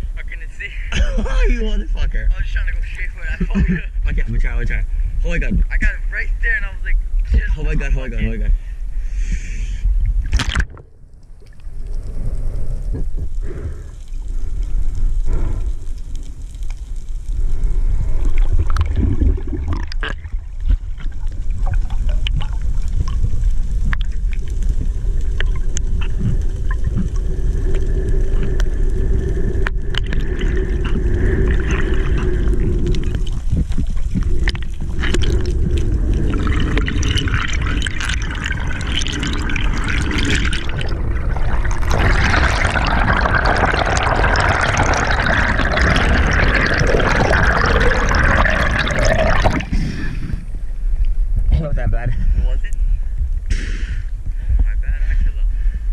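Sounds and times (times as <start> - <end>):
bubbling rushing hiss: 0.0 - 50.9
underwater rumble of moving water: 0.0 - 55.9
underwater clicks and crackles: 10.0 - 51.5.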